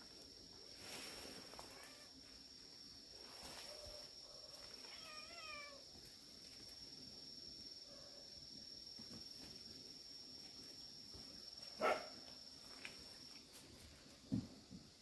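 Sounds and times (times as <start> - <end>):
cat meowing: 4.8 - 5.8.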